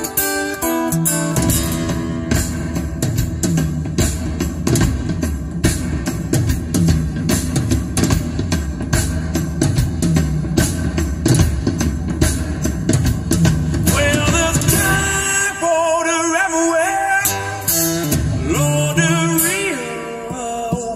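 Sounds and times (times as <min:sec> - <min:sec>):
electric guitar: 0:00.0 - 0:05.0
drum kit playing: 0:00.0 - 0:20.9
person singing: 0:13.9 - 0:20.9.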